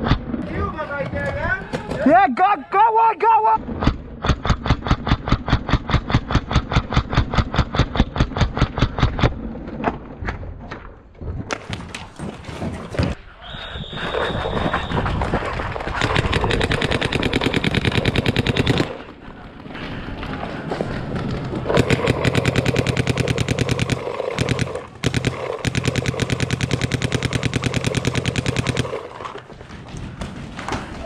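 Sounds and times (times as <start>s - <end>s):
paintball marker rapid firing: 3.7s - 9.3s, 15.1s - 19.1s, 21.4s - 30.9s.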